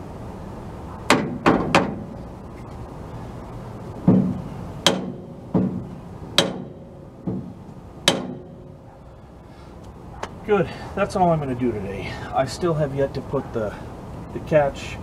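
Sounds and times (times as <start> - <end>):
hammer tapping on steel: 6.4 - 7.5.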